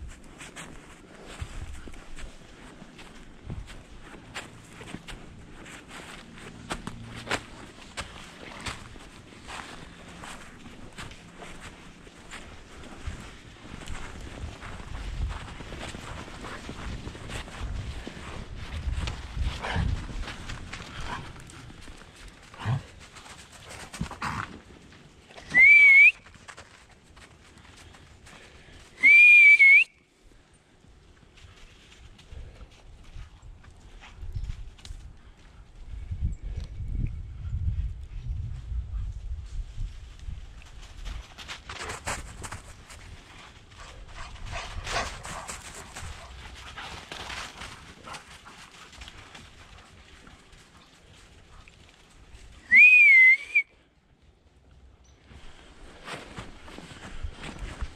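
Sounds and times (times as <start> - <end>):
footsteps crunching through snow: 0.0 - 25.4, 55.3 - 57.9
person whistling loudly: 25.4 - 26.2, 29.0 - 30.0, 52.6 - 53.7.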